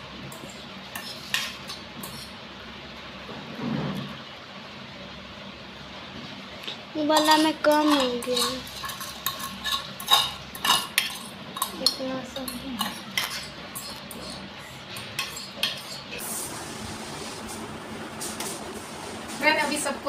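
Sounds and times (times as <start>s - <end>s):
spoon scraping pot and plate: 0.4s - 2.4s, 7.2s - 16.2s.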